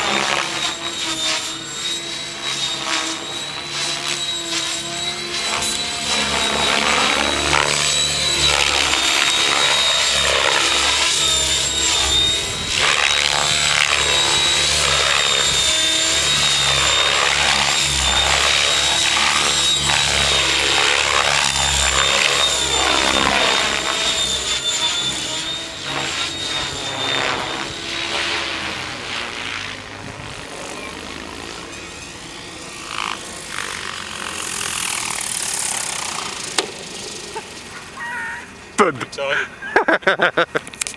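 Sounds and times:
rotor blades chopping whoosh: 0:00.0 - 0:30.6
high-pitched motor whine: 0:00.0 - 0:40.9.

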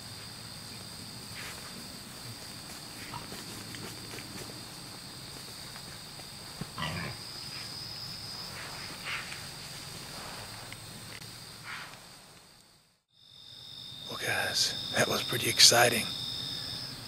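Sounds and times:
crickets trilling: 0:00.0 - 0:17.0
hogs grunting and squealing: 0:06.8 - 0:07.2.

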